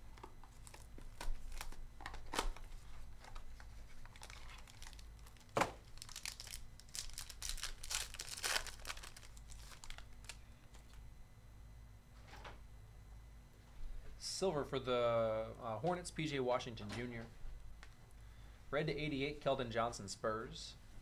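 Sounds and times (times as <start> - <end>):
foil wrapper crinkling and tearing: 0.4 - 2.7, 3.9 - 10.4.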